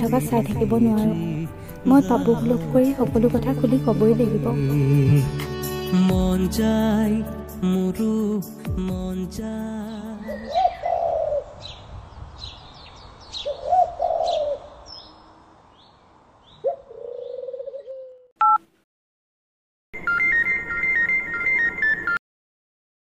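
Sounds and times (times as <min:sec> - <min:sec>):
small birds chirping: 0:09.9 - 0:18.2
dove cooing: 0:10.3 - 0:11.6, 0:13.4 - 0:14.8, 0:16.6 - 0:18.3
mobile phone ringing: 0:20.0 - 0:22.2.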